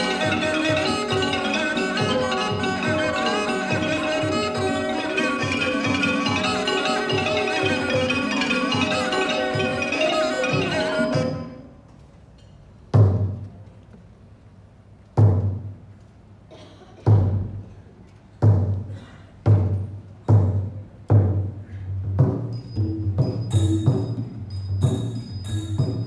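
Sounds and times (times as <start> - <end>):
xylophone ensemble playing: 0.0 - 11.7, 22.5 - 26.0.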